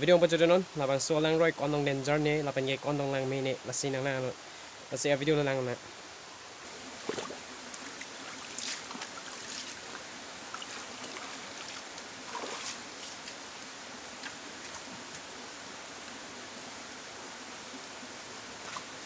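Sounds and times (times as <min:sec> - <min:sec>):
stream flowing over rocks: 0:05.9 - 0:19.0
feet splashing in water: 0:06.7 - 0:13.4.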